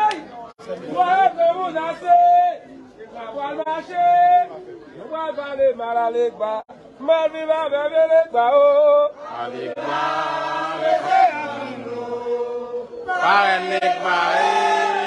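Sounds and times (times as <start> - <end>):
lone voice singing: 7.0 - 15.0
crowd of voices chanting: 9.1 - 15.0.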